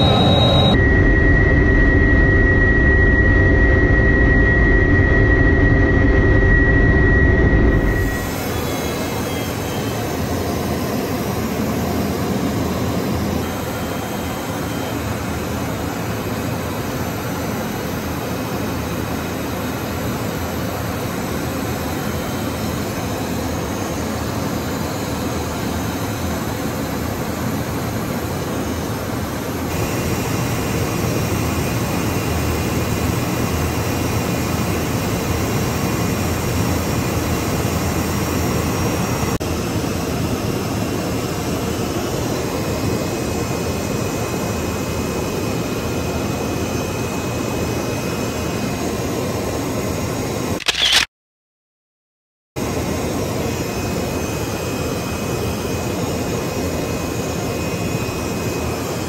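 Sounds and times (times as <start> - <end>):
faint high whine: 0.0 - 39.4
jet engine and airflow rush: 0.0 - 51.1, 52.6 - 59.0.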